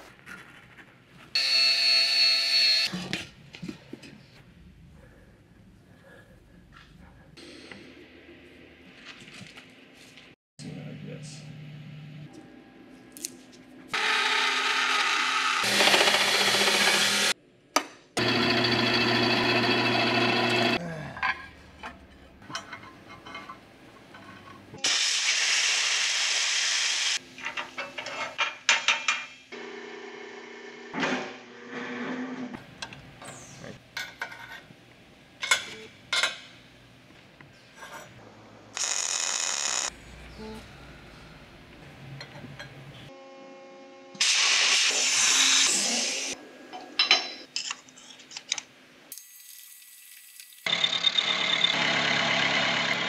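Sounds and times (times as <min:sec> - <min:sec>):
bandsaw cutting sheet steel: 0:14.0 - 0:17.4, 0:18.2 - 0:20.8, 0:50.7 - 0:53.0
drill press drilling steel: 0:18.2 - 0:20.8
welding hiss: 0:24.8 - 0:27.2.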